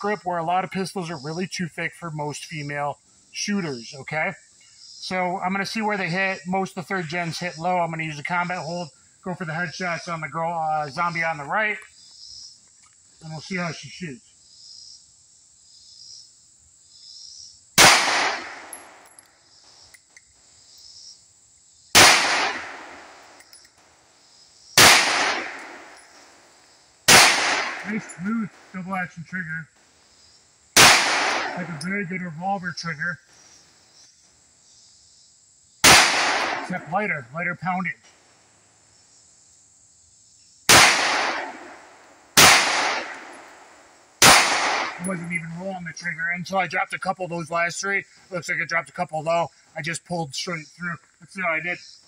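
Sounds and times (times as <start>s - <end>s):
insects buzzing: 0.0s - 52.0s
pistol shots: 17.8s - 19.0s, 22.0s - 23.4s, 24.8s - 26.0s, 27.1s - 28.7s, 30.8s - 31.9s, 35.8s - 36.9s, 40.7s - 45.4s.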